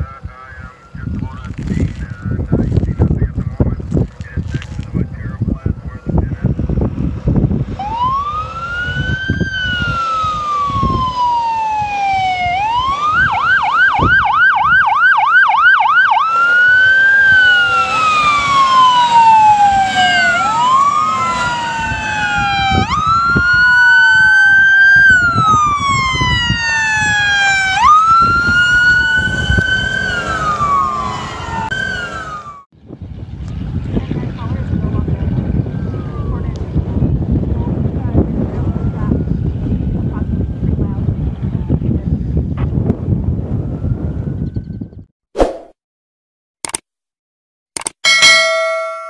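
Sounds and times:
truck engines rumbling: 0.0s - 42.5s
fire truck siren wailing and yelping: 7.6s - 32.7s, 35.5s - 36.8s
second siren sweeping: 7.7s - 32.7s.

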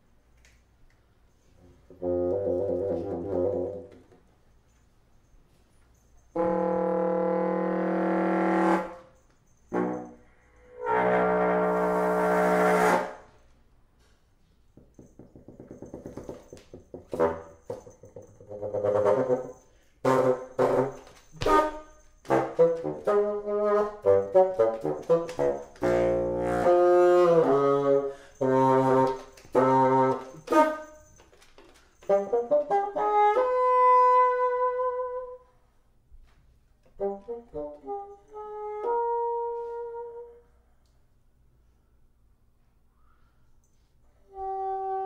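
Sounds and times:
solo bassoon playing: 1.6s - 4.0s, 6.3s - 13.4s, 17.1s - 31.1s, 32.0s - 35.6s, 36.8s - 40.5s, 44.2s - 45.0s.

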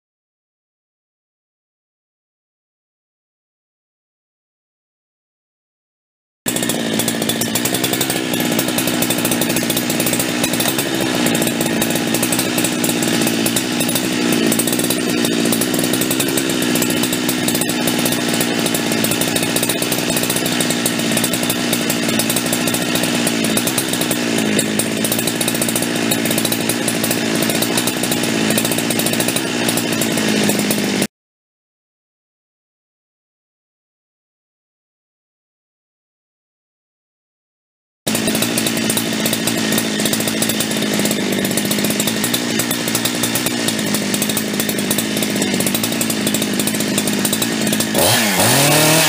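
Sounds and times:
chainsaw revving high: 6.5s - 31.1s, 38.1s - 49.0s.

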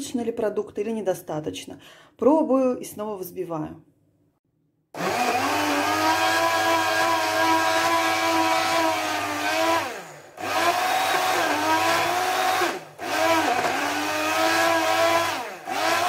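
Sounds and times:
blender motor blending ice: 5.0s - 16.0s.

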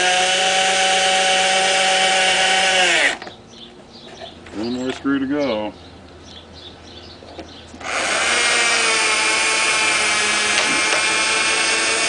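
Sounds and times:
cordless drill driving a screw: 7.8s - 12.0s.

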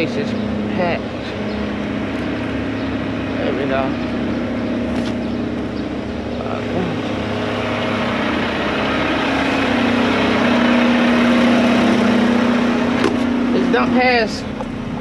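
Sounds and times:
diesel truck engine humming: 0.0s - 15.0s.

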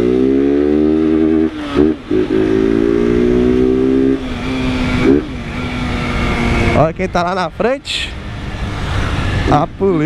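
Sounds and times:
motorcycle engine running loudly: 0.0s - 7.4s.

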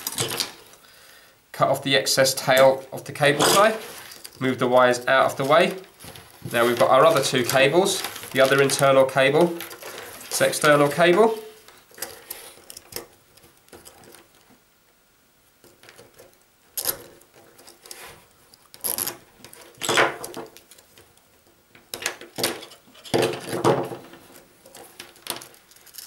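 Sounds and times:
cable tie rasping: 16.8s - 20.0s.

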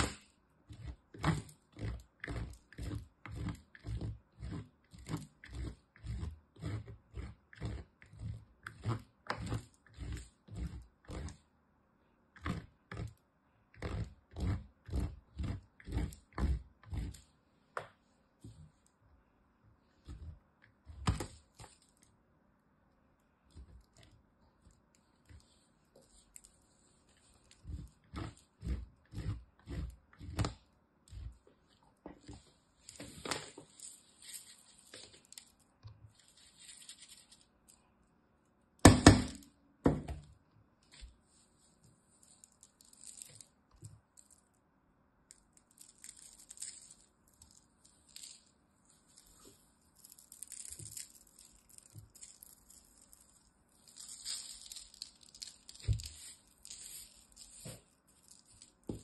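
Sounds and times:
soap shavings rustling: 0.0s - 11.4s, 12.4s - 17.4s, 19.9s - 22.1s, 23.4s - 38.0s, 40.8s - 44.5s, 45.3s - 59.0s
soap rasping on metal grater: 0.7s - 11.4s, 12.4s - 17.3s, 25.3s - 31.4s.

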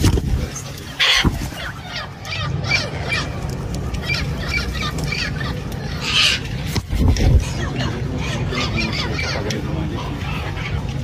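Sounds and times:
wings flapping: 0.0s - 7.8s
parrots squawking: 0.4s - 11.0s.

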